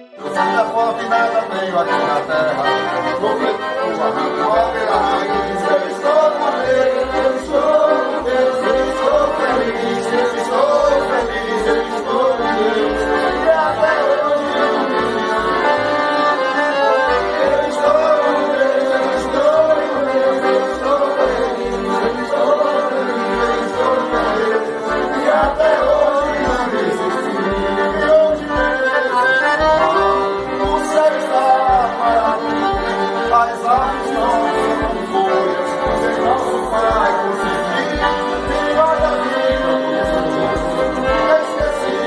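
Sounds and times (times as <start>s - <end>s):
accordions playing a tune: 0.0s - 42.0s.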